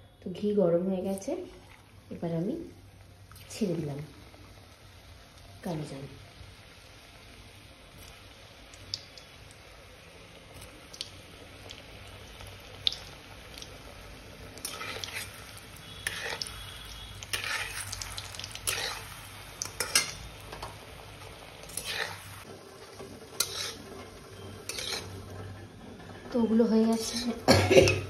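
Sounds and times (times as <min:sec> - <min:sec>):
frying sizzle: 0:00.9 - 0:28.0
metal spoon scraping pan: 0:15.9 - 0:16.6, 0:17.3 - 0:17.9, 0:18.6 - 0:19.1, 0:21.7 - 0:22.2, 0:23.3 - 0:25.5, 0:26.8 - 0:28.0.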